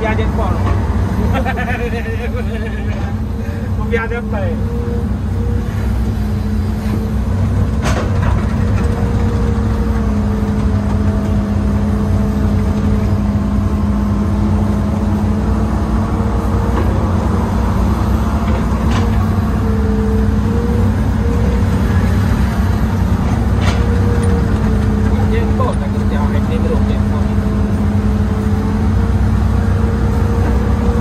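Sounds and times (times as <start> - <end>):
diesel engine running under load: 0.0 - 31.0
hydraulic whine: 0.0 - 31.0.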